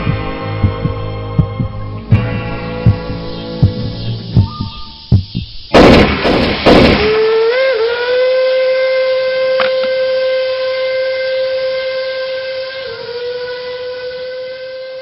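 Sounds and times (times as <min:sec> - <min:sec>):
steam locomotive whistle: 0:07.0 - 0:15.0.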